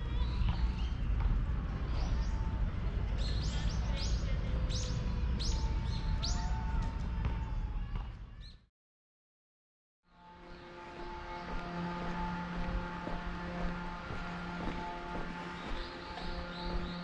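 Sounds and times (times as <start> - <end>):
steady low rumble: 0.0 - 8.5, 10.4 - 17.0
bird chirping: 15.4 - 17.0.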